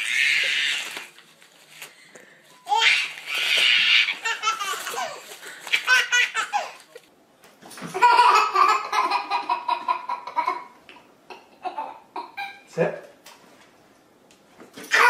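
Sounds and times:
baby laughing: 2.7 - 7.0, 7.9 - 12.6.

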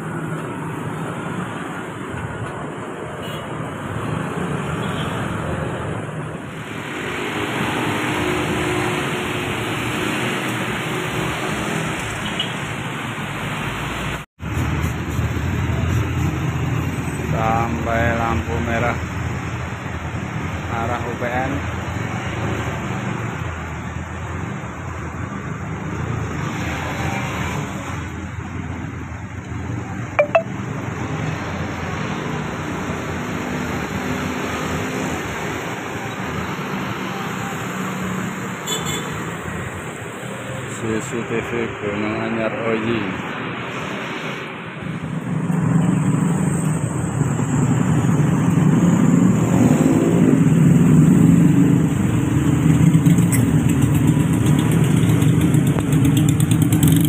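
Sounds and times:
road traffic noise: 0.0 - 57.0
cars and motorcycles idling in traffic: 50.1 - 57.0.

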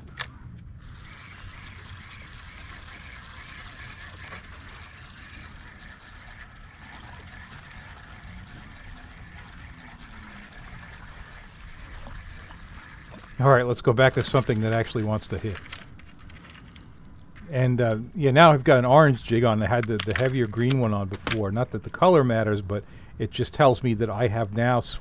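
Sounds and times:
boat on water: 0.0 - 25.0
spinning reel whirring: 0.8 - 25.0.

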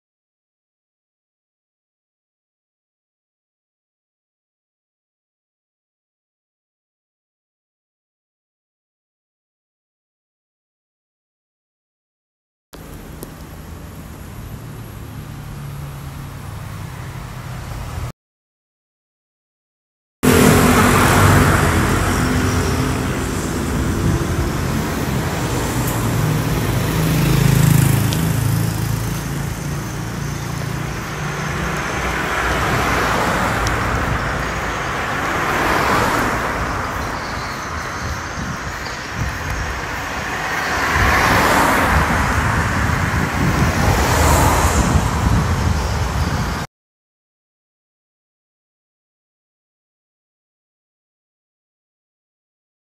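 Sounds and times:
cars passing: 12.8 - 18.1, 20.2 - 46.7
low traffic rumble: 12.8 - 18.1, 20.2 - 46.7.

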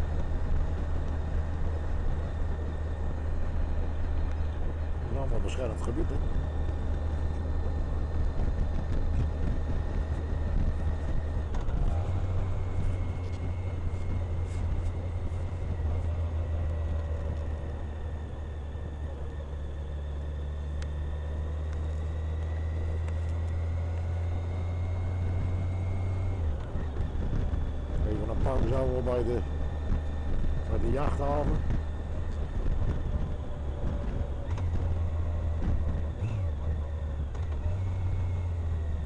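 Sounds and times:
motorcycle engine droning: 0.0 - 39.0
wind and road noise: 0.0 - 39.0.

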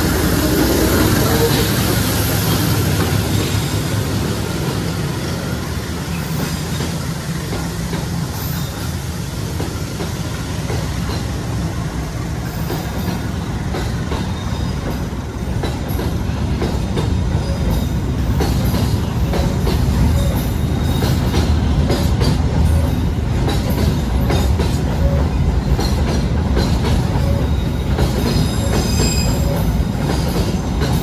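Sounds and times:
train carriages rumbling: 0.0 - 31.0
wheels clacking over rail joints: 9.5 - 31.0.

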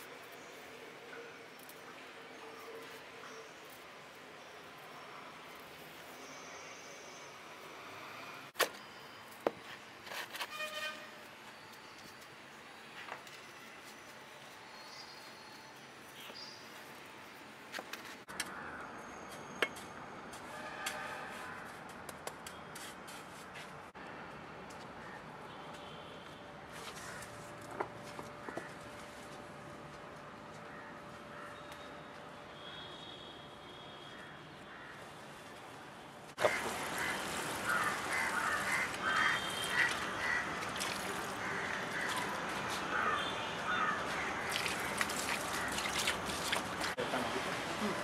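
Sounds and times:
water splashing into pond: 36.4 - 42.4, 44.4 - 47.0
birds calling: 36.4 - 46.3.

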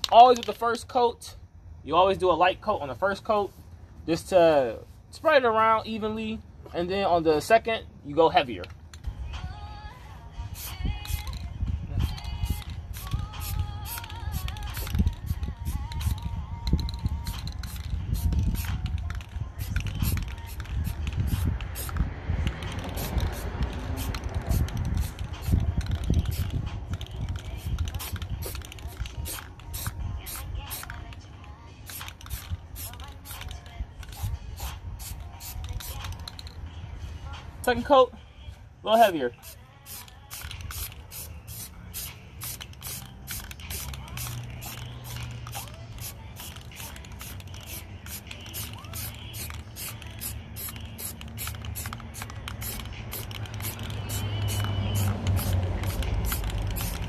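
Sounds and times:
steady low rumble: 8.7 - 30.8
aerosol can spraying: 10.5 - 31.2, 31.8 - 36.6, 39.4 - 57.0
wind on microphone: 10.7 - 28.6.

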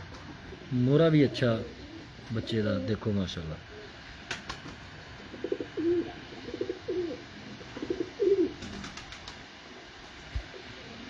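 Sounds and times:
pigeon cooing: 0.5 - 3.0, 3.6 - 4.0, 5.2 - 9.2, 10.5 - 11.0.

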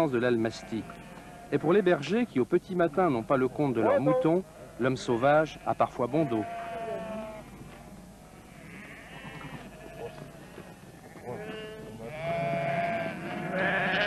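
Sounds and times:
sheep bleating: 0.6 - 1.9, 5.0 - 7.6, 8.3 - 14.0.

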